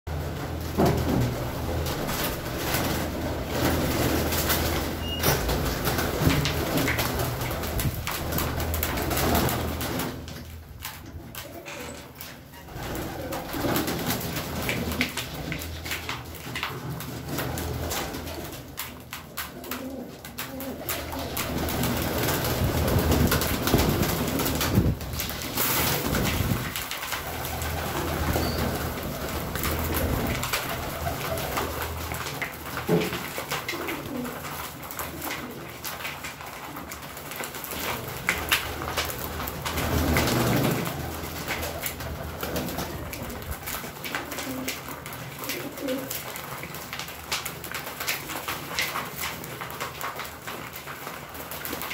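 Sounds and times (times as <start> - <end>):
beaks pecking seed in plastic tray: 2.6 - 51.9
pigeons cooing: 11.2 - 15.9, 19.4 - 22.6, 25.6 - 37.2, 39.7 - 46.5.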